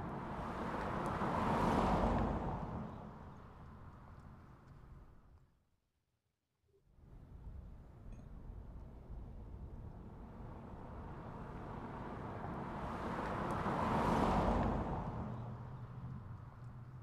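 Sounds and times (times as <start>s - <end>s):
road vehicle passing: 0.0s - 4.6s, 10.0s - 17.0s.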